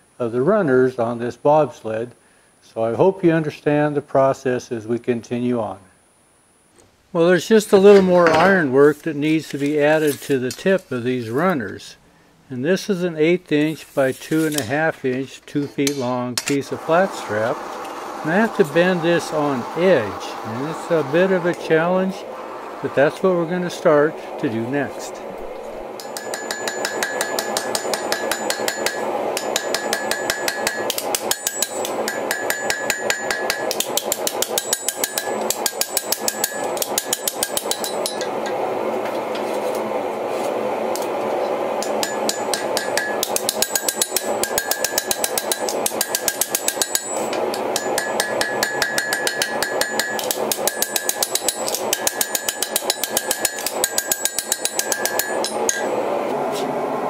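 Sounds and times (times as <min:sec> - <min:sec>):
hammer striking hot steel: 0:15.7 - 0:16.7, 0:26.0 - 0:38.6, 0:41.8 - 0:56.1
anvil ringing: 0:26.0 - 0:38.3, 0:41.8 - 0:56.0.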